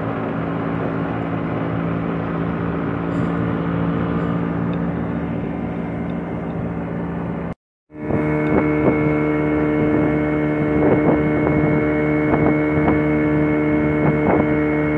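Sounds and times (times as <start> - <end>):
boat engine humming: 0.0 - 14.9.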